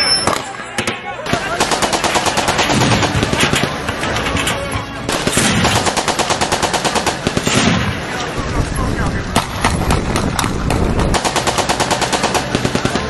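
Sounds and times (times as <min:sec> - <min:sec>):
rapid automatic gunfire: 0:01.3 - 0:03.9, 0:05.1 - 0:13.0.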